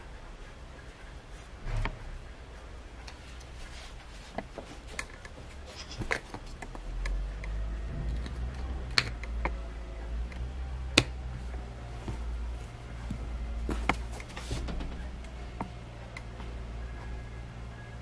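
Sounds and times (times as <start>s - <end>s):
low rumble: 6.8s - 18.0s.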